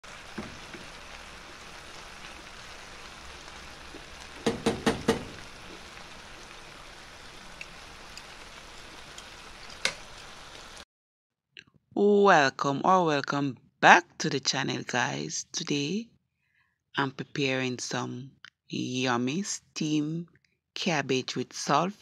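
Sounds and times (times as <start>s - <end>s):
food sizzling in a pan: 0.0s - 10.8s
sharp knocks: 4.4s - 5.4s.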